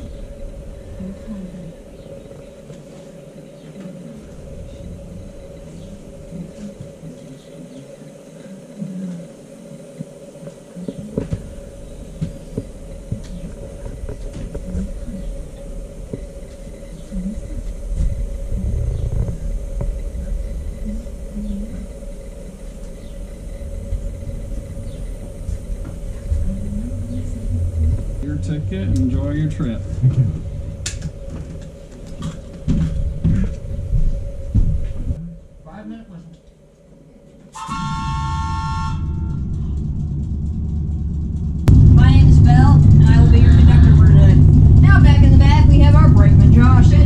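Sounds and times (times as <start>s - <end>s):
train humming and rumbling: 0.0s - 47.0s
faint voices talking: 0.8s - 23.2s, 24.2s - 30.8s.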